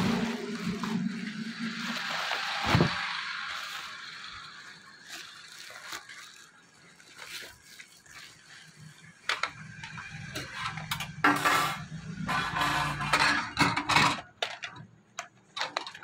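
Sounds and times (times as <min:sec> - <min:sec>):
packaging rustling and crackling: 0:00.2 - 0:09.9.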